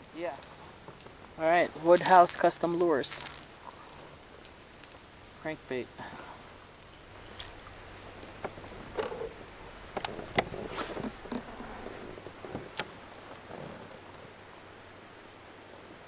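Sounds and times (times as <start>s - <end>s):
rustling: 0.0s - 5.1s, 6.0s - 14.4s
fishing gear clicking and knocking: 0.3s - 5.0s, 6.8s - 13.8s.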